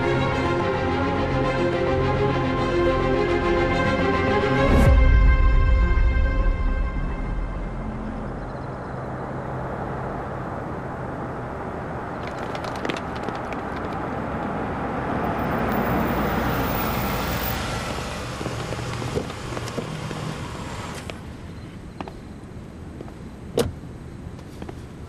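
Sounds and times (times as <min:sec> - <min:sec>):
car driving up and pulling in: 0:00.0 - 0:22.4.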